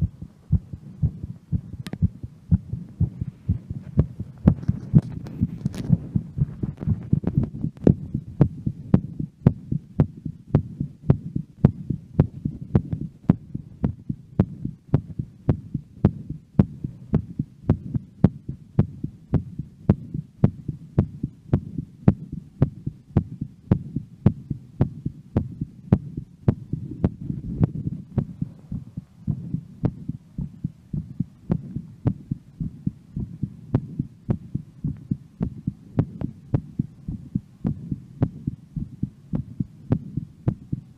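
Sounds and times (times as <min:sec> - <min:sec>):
constant low hum: 0:00.0 - 0:40.9
heartbeat: 0:00.0 - 0:40.9.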